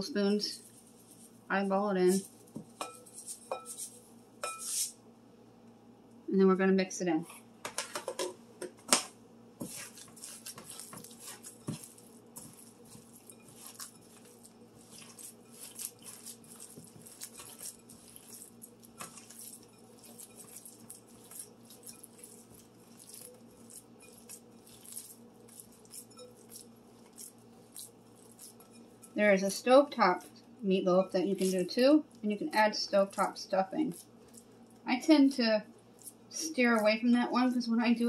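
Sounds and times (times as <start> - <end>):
hands squishing ground meat: 9.6 - 30.3, 31.2 - 34.8.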